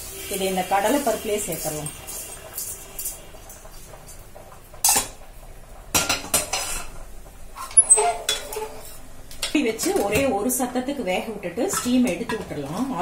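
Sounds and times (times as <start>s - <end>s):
spoon clanking against steel pans: 7.7s - 10.3s, 11.6s - 13.0s.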